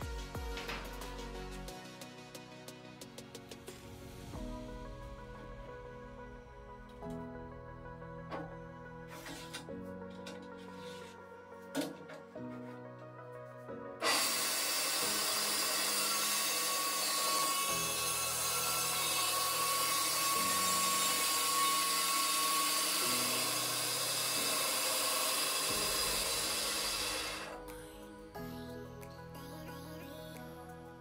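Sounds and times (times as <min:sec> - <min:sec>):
bandsaw cutting wood: 0:14.0 - 0:27.6.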